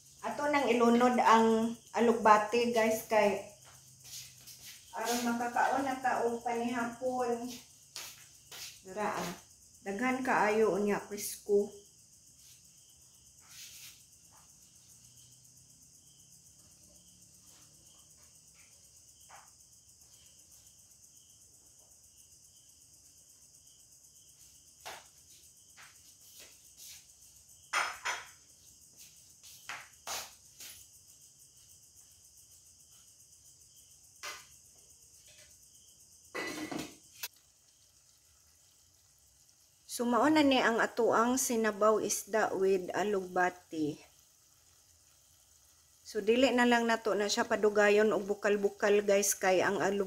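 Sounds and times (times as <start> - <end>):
insects chirping: 0.0 - 50.0
kitchenware clinking and knocking: 27.7 - 28.4.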